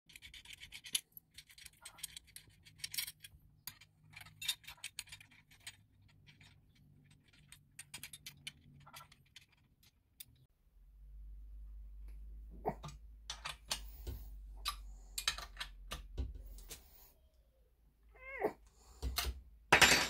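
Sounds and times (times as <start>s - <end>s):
small metal parts clinking: 0.1s - 10.5s.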